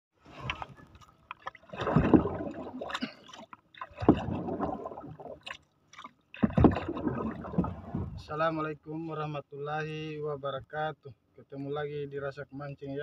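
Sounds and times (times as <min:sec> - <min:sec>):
paddle pulling through water: 0:00.2 - 0:08.3.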